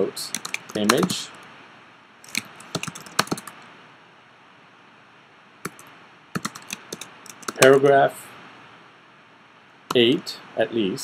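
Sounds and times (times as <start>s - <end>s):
typing on computer keyboard: 0.4s - 1.2s, 2.3s - 3.6s, 5.7s - 7.8s.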